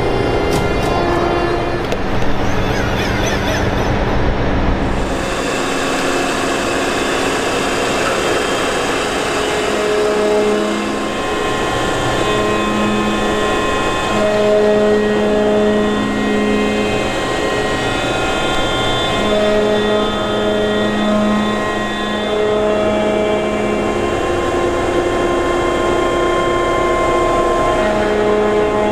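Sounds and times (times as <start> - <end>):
engine room machinery drone: 0.0 - 28.9
machinery whining tones: 0.0 - 28.9.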